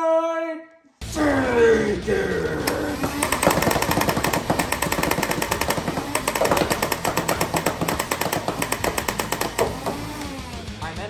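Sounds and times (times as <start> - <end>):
motor hum: 2.5 - 10.8
toy blaster rapid firing: 2.7 - 10.5.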